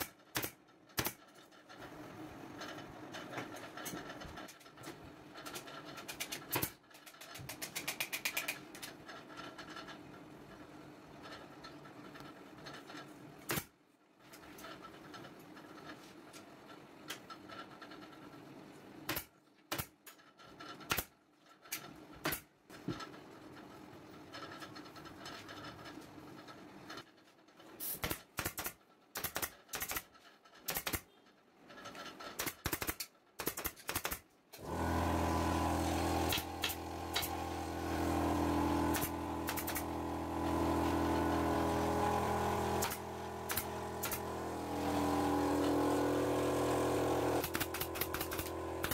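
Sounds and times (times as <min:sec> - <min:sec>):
staple gun firing into wood: 0:00.0 - 0:01.2, 0:32.4 - 0:34.2, 0:38.9 - 0:39.8, 0:42.8 - 0:44.2, 0:47.4 - 0:48.9.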